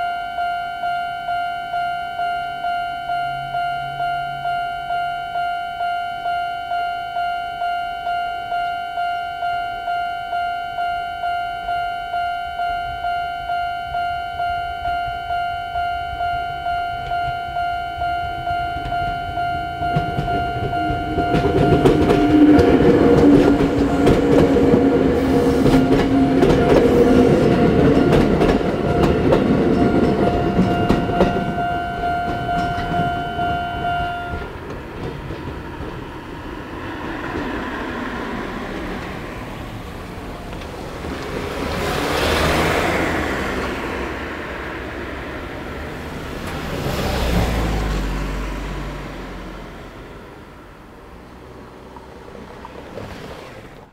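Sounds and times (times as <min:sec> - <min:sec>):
level crossing bell ringing: 0:00.0 - 0:34.6
train wheels clattering: 0:19.9 - 0:33.5, 0:34.3 - 0:36.1.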